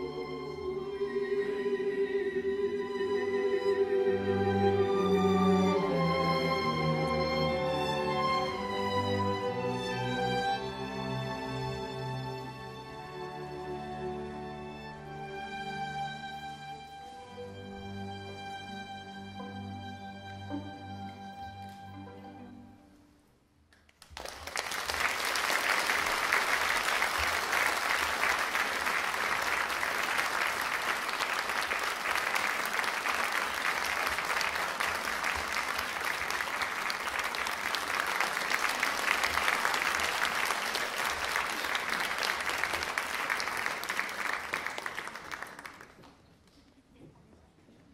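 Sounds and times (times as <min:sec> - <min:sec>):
audience applauding: 0:23.8 - 0:46.2.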